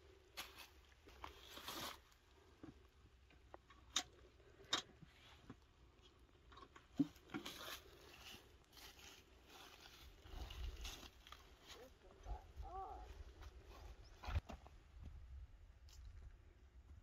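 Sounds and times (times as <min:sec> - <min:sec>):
footsteps through dry leaves: 0:00.4 - 0:02.2, 0:07.4 - 0:12.0.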